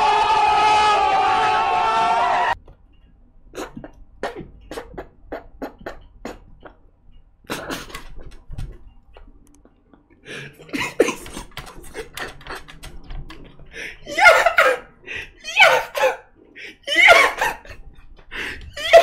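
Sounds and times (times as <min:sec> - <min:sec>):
man laughing: 0:10.6 - 0:12.8.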